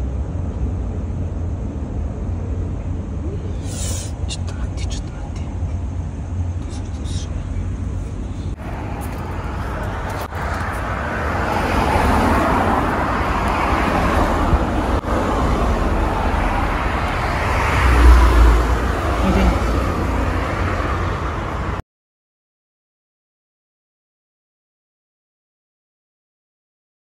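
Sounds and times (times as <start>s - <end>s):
road traffic passing: 0.0s - 21.8s
car passing by: 8.5s - 21.8s.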